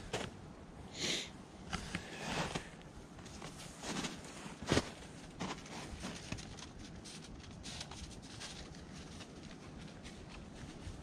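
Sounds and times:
boots crunching in snow: 0:03.4 - 0:06.3.

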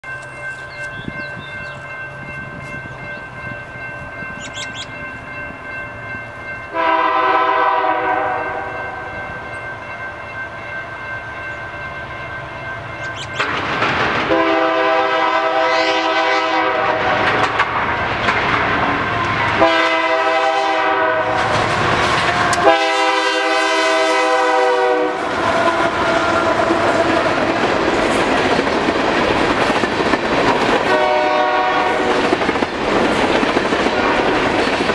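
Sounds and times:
train wheels rumbling on rail: 0:00.0 - 0:34.9
locomotive air horns blowing: 0:06.7 - 0:09.1, 0:14.3 - 0:17.6, 0:18.8 - 0:27.2, 0:30.8 - 0:32.3.

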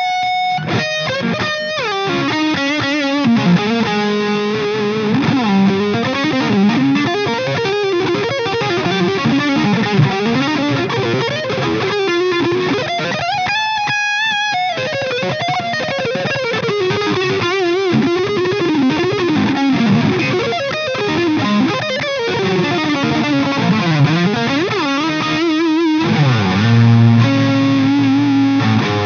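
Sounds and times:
overdriven electric guitar lead: 0:00.0 - 0:29.0.

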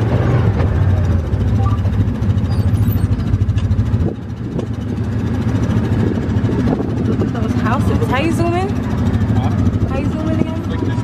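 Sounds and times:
engine pulsing low rumble: 0:00.0 - 0:11.0.

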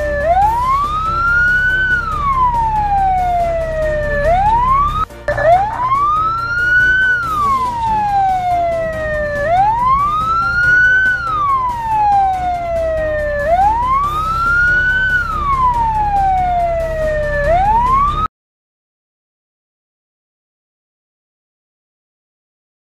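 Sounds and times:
siren wailing: 0:00.0 - 0:18.3.

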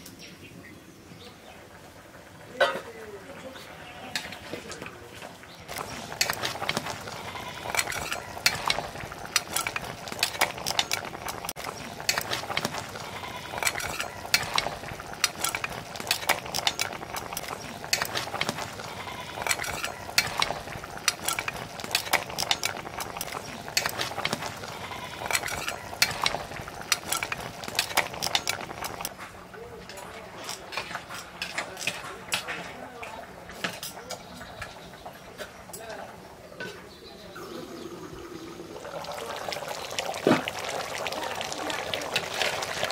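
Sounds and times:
simmering pot hiss: 0:00.0 - 0:42.9
metal spatula scraping a pot: 0:05.7 - 0:29.1.

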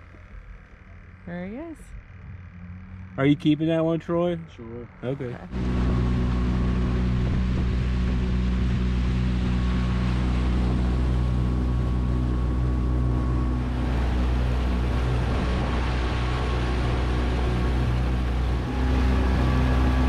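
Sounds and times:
outboard motor running: 0:00.0 - 0:20.0
rushing boat wake: 0:05.0 - 0:20.0.

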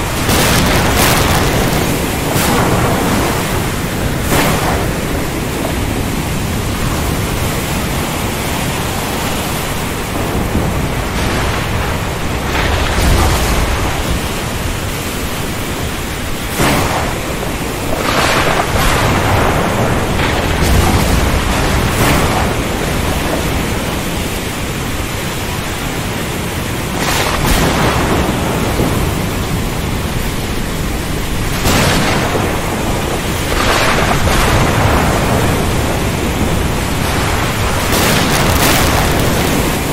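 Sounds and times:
heavy rain hissing: 0:00.0 - 0:39.9
thunder cracks and rumbles: 0:00.0 - 0:39.9.

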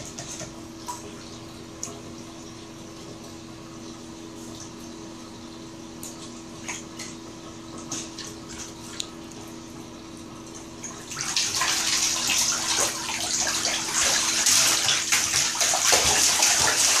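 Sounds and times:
puppy splashing in water: 0:10.8 - 0:17.0.

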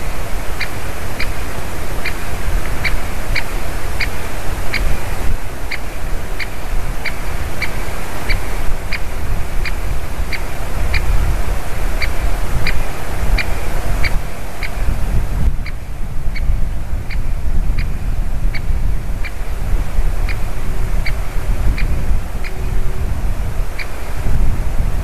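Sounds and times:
woodpecker kik calls: 0:00.0 - 0:05.0, 0:05.6 - 0:11.1, 0:15.6 - 0:19.5, 0:20.2 - 0:23.1
wind rumble on microphone: 0:00.0 - 0:25.0.

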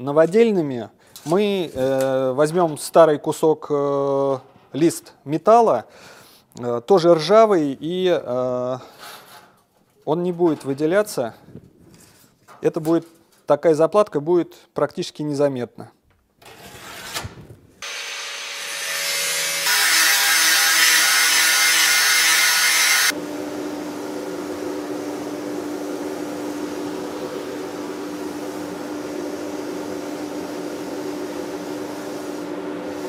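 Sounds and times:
power tool cutting metal: 0:17.8 - 0:23.2
power tool humming: 0:17.8 - 0:28.8.

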